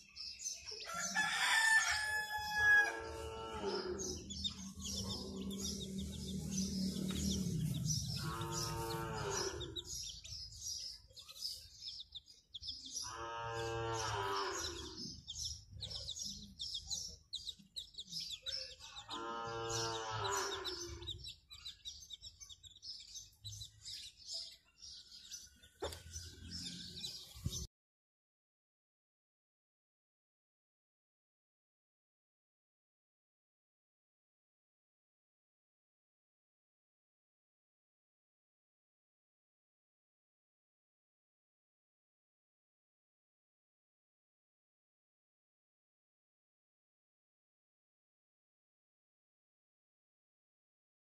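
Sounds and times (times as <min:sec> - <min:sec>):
chicks peeping: 0:00.0 - 0:27.7
deep farm animal call: 0:00.9 - 0:11.0, 0:12.8 - 0:27.7.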